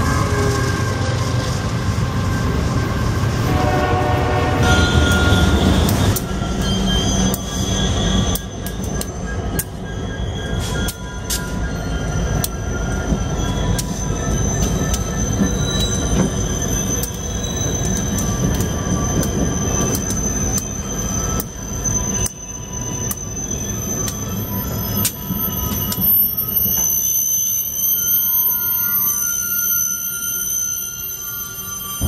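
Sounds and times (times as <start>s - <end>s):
diesel locomotive engine rumble: 0.0s - 32.0s
high wheel squeal: 0.0s - 32.0s
wheels clicking on track: 10.6s - 27.1s.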